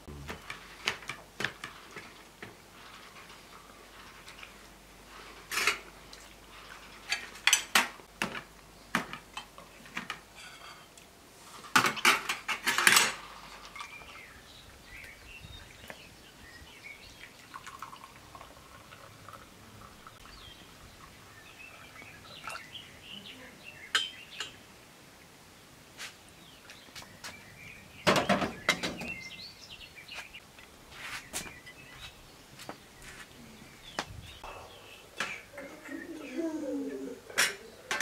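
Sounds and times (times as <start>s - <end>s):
cutlery clinking on plates: 37.3s - 38.0s.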